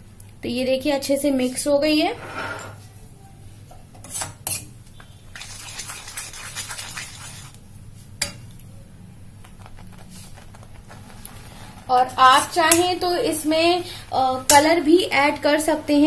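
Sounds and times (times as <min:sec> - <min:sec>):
spoon stirring wet mixture: 0:04.5 - 0:07.6.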